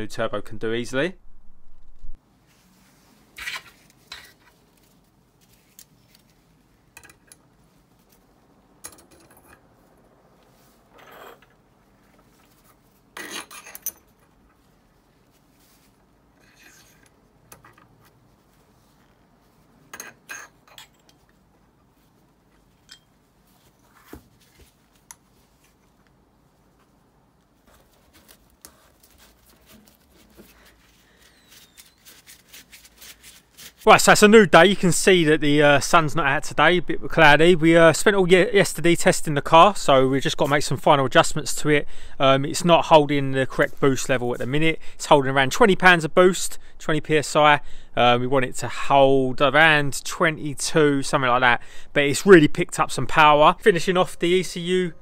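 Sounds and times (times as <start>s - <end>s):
metal parts clinking on a worktop: 8.8s - 9.6s, 13.2s - 14.2s, 19.9s - 21.2s.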